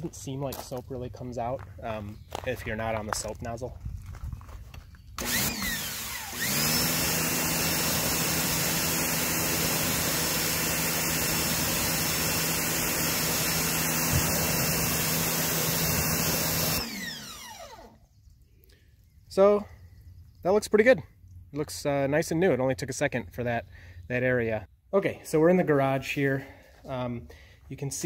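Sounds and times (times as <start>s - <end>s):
pressure washer motor running: 5.2s - 18.0s.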